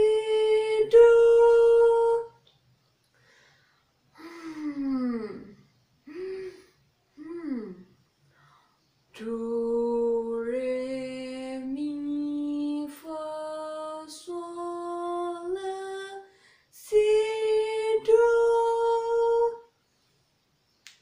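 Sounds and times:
woman singing a scale: 0:00.0 - 0:02.4, 0:09.2 - 0:19.7.

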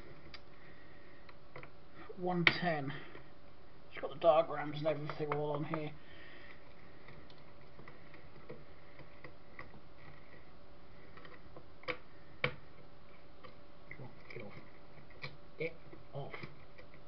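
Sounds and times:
hands clicking and tapping on wiring: 0:01.2 - 0:01.8, 0:04.5 - 0:17.0.

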